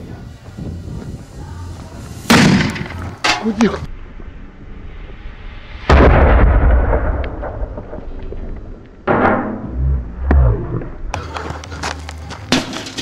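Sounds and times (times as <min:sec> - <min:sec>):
firecracker bang: 0:02.2 - 0:03.4, 0:05.8 - 0:08.2
low thuds: 0:05.8 - 0:11.2
metal bucket crashing: 0:12.5 - 0:13.0.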